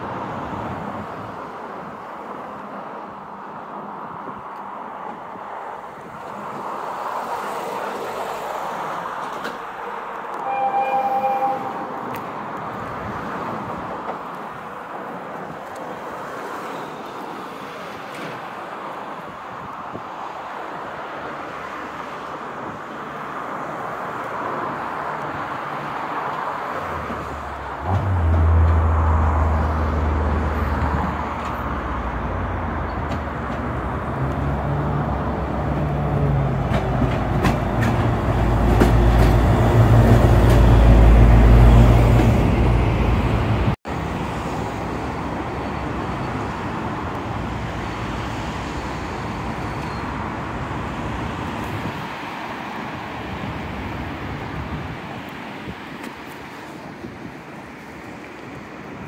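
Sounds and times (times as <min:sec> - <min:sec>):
diesel locomotive engine hum: 0:00.0 - 0:19.3, 0:23.7 - 0:51.8.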